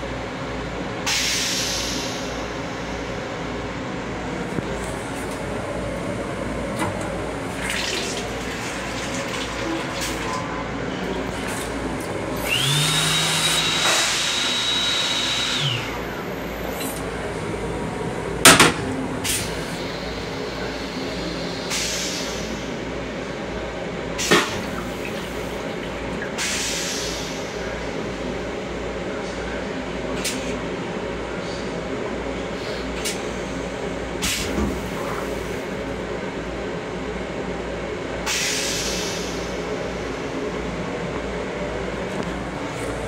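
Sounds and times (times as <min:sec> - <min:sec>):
sink water running: 0:06.9 - 0:10.4
motor whine: 0:12.0 - 0:19.1
moving train rumble: 0:15.4 - 0:28.4.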